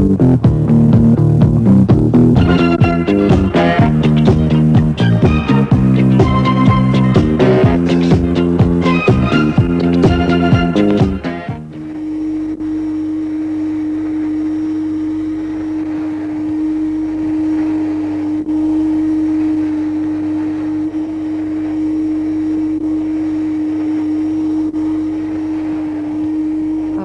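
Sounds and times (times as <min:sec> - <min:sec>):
vacuum cleaner running: 0:02.4 - 0:27.0.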